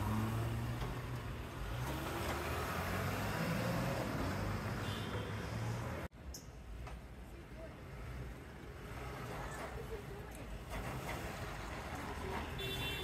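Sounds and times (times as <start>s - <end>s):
vehicle pulling away: 0.0s - 4.8s
traffic engine hum: 0.0s - 13.0s.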